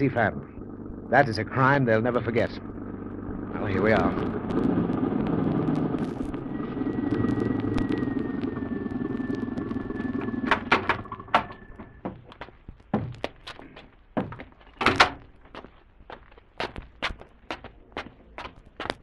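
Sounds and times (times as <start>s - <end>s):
car engine running: 0.0s - 12.3s.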